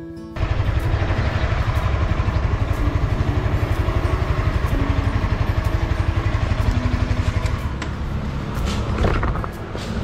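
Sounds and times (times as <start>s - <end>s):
motorcycle engine idling: 0.4s - 8.3s.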